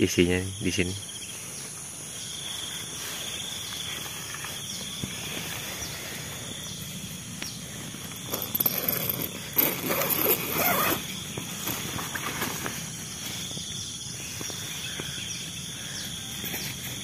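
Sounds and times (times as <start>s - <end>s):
insects trilling and buzzing: 0.0s - 17.0s
rustling and handling: 2.4s - 14.8s.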